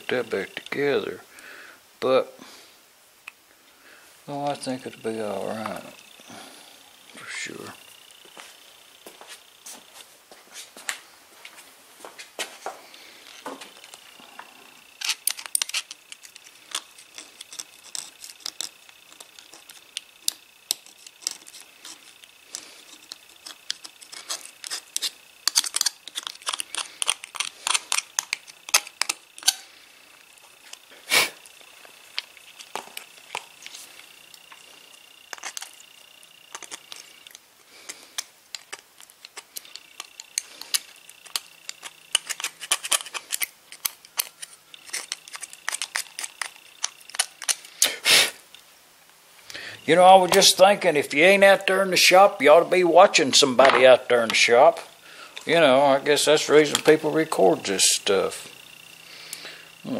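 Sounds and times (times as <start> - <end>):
metal parts clicking and tapping: 13.3 - 29.6, 35.3 - 35.8, 36.5 - 47.7.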